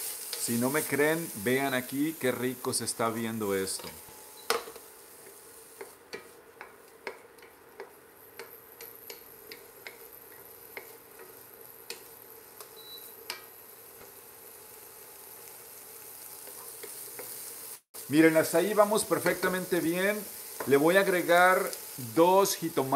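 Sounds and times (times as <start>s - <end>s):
vegetables sizzling in a pan: 0.0s - 22.9s
wooden spoon scraping a pan: 16.4s - 17.6s.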